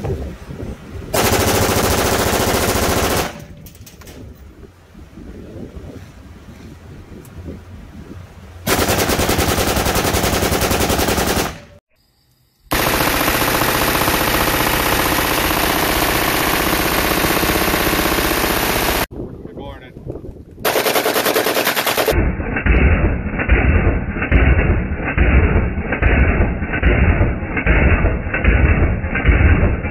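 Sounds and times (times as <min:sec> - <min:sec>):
separate gunshots: 0:01.2 - 0:03.6, 0:08.7 - 0:11.8, 0:12.7 - 0:19.1, 0:20.6 - 0:29.9
automatic rifle fire: 0:08.7 - 0:11.8, 0:12.7 - 0:19.1.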